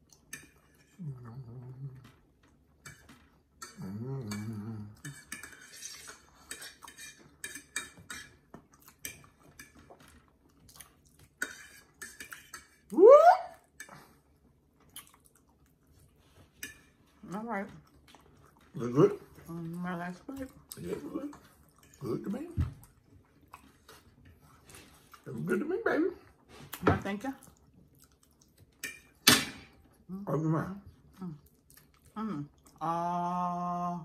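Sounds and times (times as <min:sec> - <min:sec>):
forks clinking and scraping on plates: 0:02.8 - 0:10.1, 0:11.4 - 0:12.8
low closed-mouth hums: 0:03.7 - 0:05.1.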